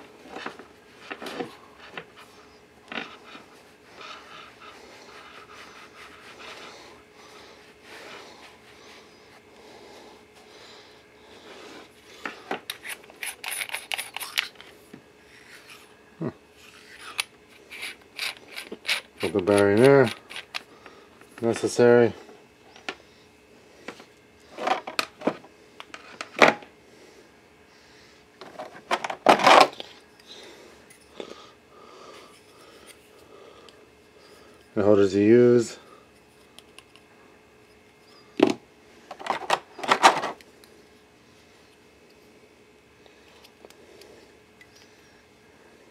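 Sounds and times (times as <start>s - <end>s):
hands rubbing microphone body: 3.0s - 7.0s.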